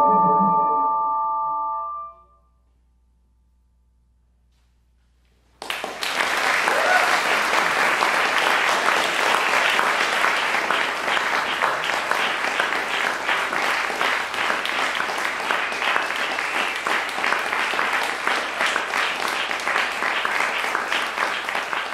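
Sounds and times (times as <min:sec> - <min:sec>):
audience applauding: 0:05.6 - 0:21.9.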